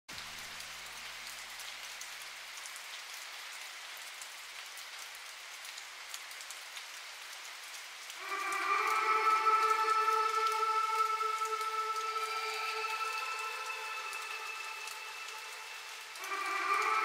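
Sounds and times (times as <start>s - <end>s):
falling water hissing: 8.2s - 17.0s.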